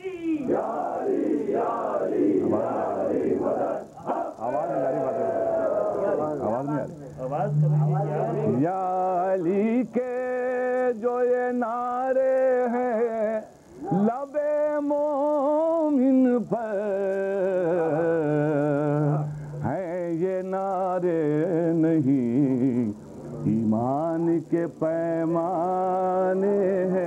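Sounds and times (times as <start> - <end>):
man chanting: 6.0 - 27.0.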